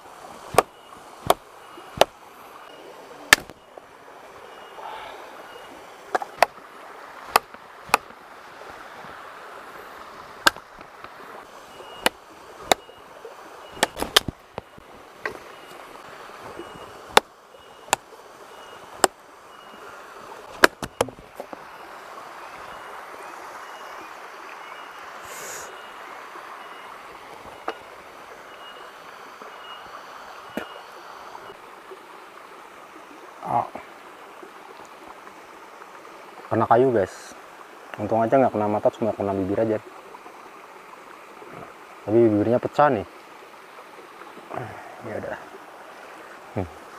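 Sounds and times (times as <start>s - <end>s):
river and waterfall rushing: 0.0s - 46.9s
blade chopping hard wood: 0.5s - 1.4s, 2.0s - 2.2s, 3.3s - 3.6s, 7.3s - 8.2s, 12.0s - 12.9s, 13.8s - 14.4s, 17.1s - 17.3s, 20.6s - 21.2s.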